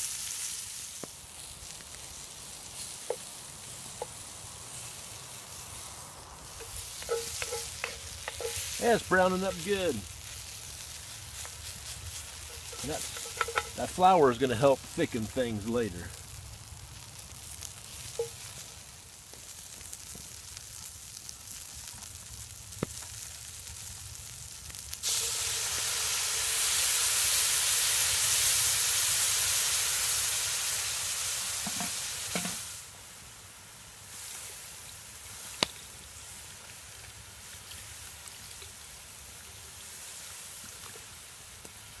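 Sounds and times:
loud hiss of steam: 0.0 - 16.2, 25.0 - 42.0
meat sizzling in a pot: 0.0 - 42.0.

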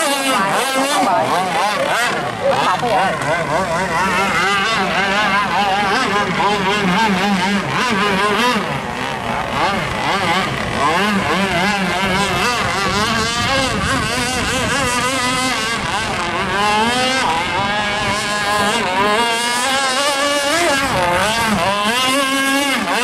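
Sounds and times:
speedboat engine running hard: 0.0 - 23.0.

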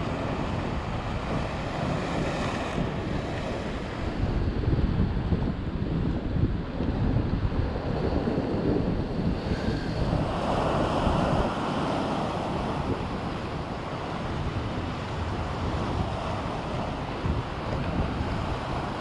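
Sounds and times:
wind buffeting microphone: 0.0 - 19.0
waves washing against rocks: 9.3 - 19.0.

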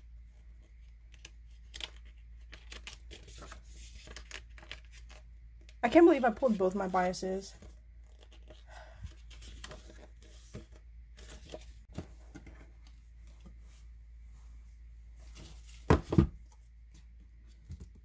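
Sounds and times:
book pages turning: 0.6 - 12.6.

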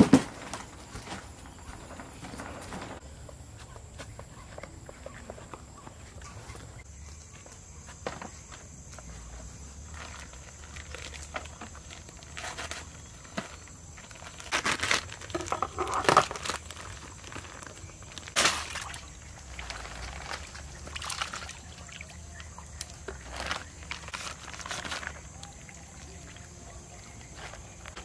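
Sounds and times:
water pouring and sloshing: 14.8 - 27.8.

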